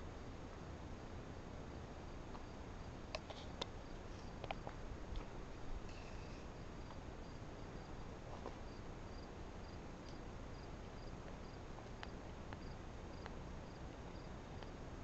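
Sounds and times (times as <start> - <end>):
low background hiss: 0.0 - 15.0
cricket chirping: 5.9 - 14.8.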